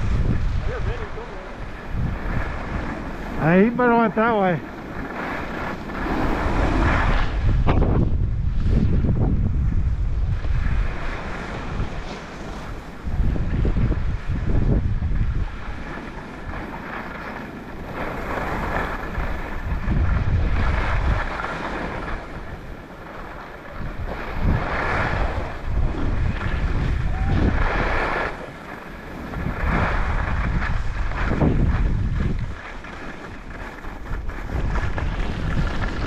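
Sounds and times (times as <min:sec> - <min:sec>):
wind buffeting microphone: 0:00.0 - 0:36.0
edges carving over packed snow: 0:00.1 - 0:07.5, 0:15.5 - 0:36.0.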